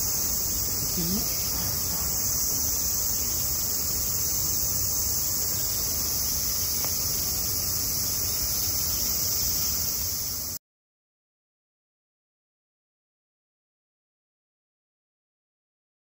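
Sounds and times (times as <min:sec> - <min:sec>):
cicadas buzzing: 0:00.0 - 0:10.6.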